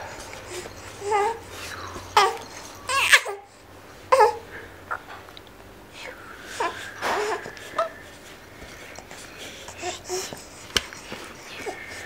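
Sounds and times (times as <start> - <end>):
infant cooing and babbling: 0.5 - 5.1, 6.6 - 8.0, 9.6 - 12.0.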